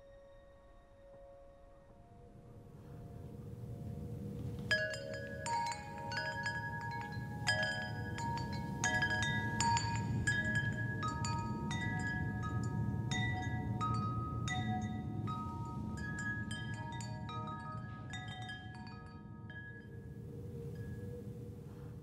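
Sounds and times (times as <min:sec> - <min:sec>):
low steady background noise: 0:00.0 - 0:22.0
metal wind chime ringing: 0:04.7 - 0:21.0.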